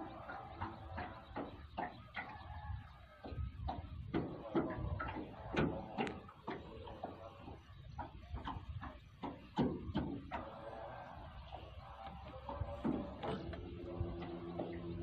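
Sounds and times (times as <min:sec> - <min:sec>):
knocks and clicks on wooden boat: 0:03.2 - 0:10.5.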